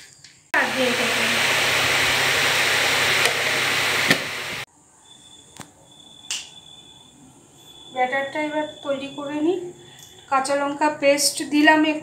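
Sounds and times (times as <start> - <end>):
loud steady hiss: 0.6 - 4.7.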